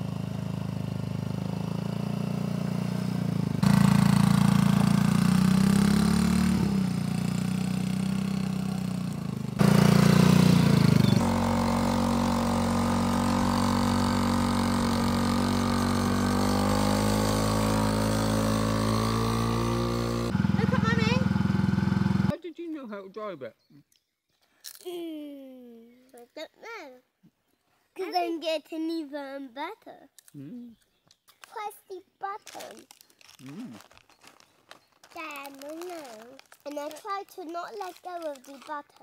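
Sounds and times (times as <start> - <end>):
quad bike motor running: 0.0 - 22.3.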